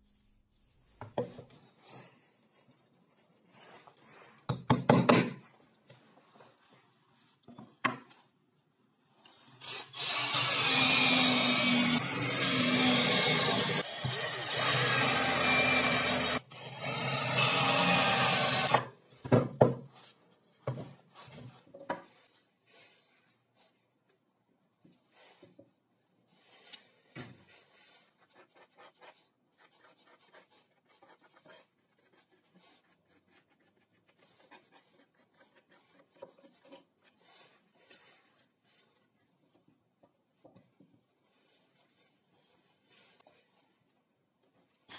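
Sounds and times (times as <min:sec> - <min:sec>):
cordless drill boring into plywood: 0:09.6 - 0:18.8.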